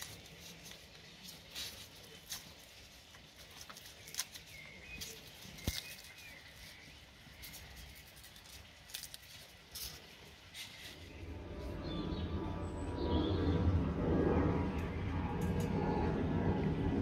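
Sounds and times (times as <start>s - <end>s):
gloved hands pulling onion apart: 0.0s - 11.0s.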